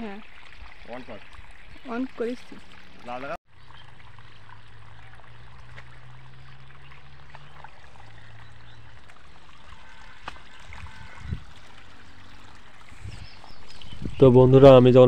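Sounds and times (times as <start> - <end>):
water pouring from pipe: 0.0 - 15.0.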